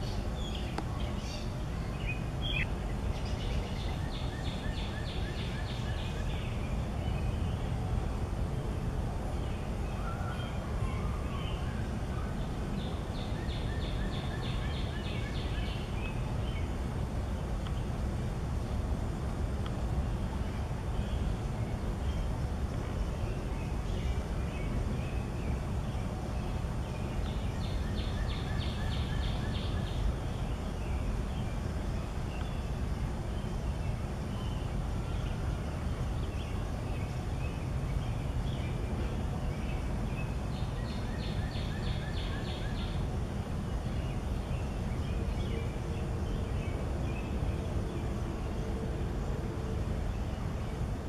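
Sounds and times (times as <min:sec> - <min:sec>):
songbird chirps: 0:00.0 - 0:51.0.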